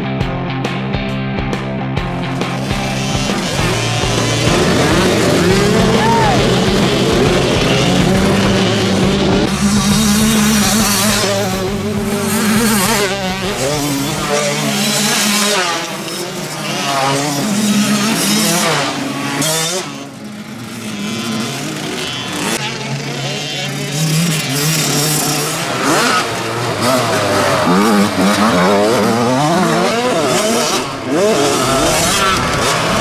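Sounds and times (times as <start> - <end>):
motocross bike engines revving: 0.0 - 33.0.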